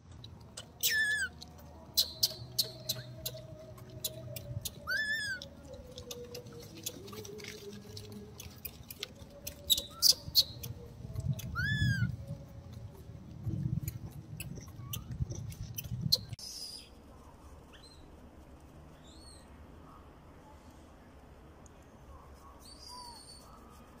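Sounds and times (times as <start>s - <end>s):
infant monkey squeaking: 0.4s - 7.4s, 8.4s - 12.2s, 13.8s - 16.8s, 22.6s - 23.6s.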